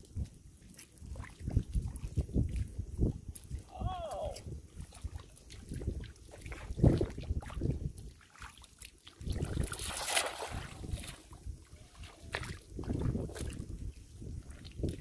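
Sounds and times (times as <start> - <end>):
cast net splashing into water: 8.2 - 11.4.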